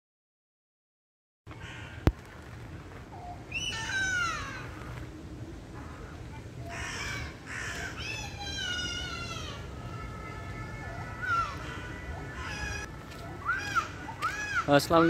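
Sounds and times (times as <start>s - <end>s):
large bird calling: 3.1s - 5.1s, 5.7s - 15.0s.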